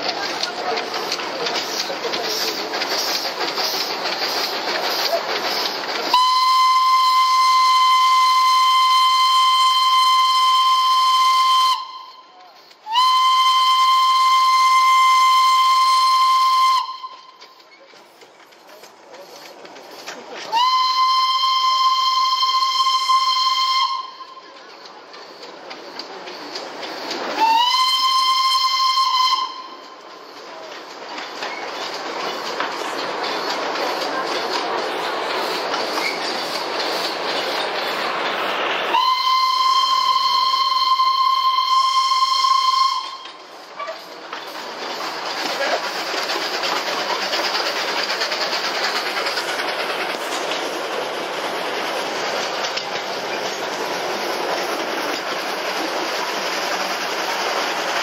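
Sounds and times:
moving train rushing noise: 0:00.0 - 0:58.0
steam whistle blasts: 0:06.1 - 0:17.4, 0:20.5 - 0:24.4, 0:27.4 - 0:29.9, 0:38.9 - 0:43.4.

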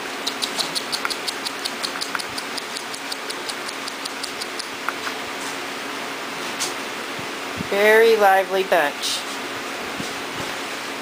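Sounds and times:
rapid light ticks: 0:00.2 - 0:05.0.

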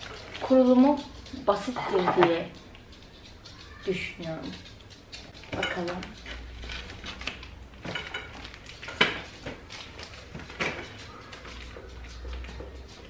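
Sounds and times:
plastic wrapping rustling: 0:00.0 - 0:02.4, 0:05.4 - 0:12.7
parts clicking and knocking: 0:04.8 - 0:13.0
scissors cutting plastic: 0:05.4 - 0:12.5.

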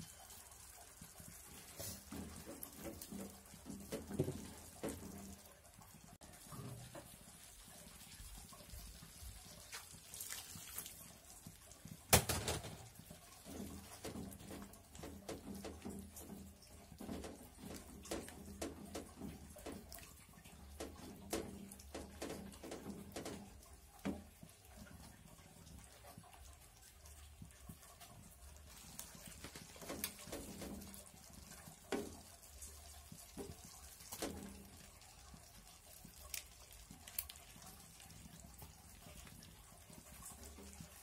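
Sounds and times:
sauce sloshing in a wok: 0:07.0 - 0:12.0
small ticks and pops: 0:26.8 - 0:40.9.

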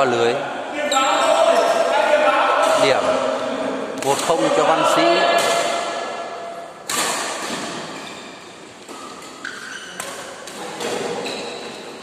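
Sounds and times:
racket hitting shuttlecock: 0:06.8 - 0:11.9.

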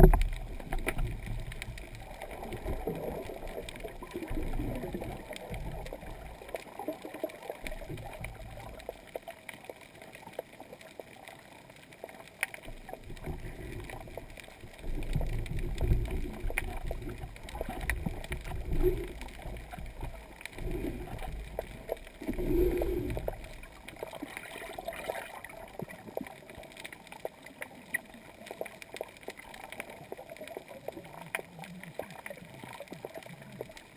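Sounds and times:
faint clicks: 0:00.0 - 0:33.9
low rumbling water surges: 0:00.0 - 0:33.9
underwater hiss: 0:22.2 - 0:23.4.

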